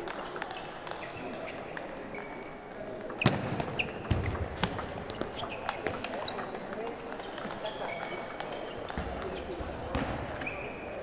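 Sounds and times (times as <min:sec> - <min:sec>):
shoe squeaks: 0:00.5 - 0:02.6, 0:03.2 - 0:04.4, 0:05.1 - 0:06.5, 0:07.2 - 0:11.0
ping pong ball clicks: 0:03.0 - 0:07.6.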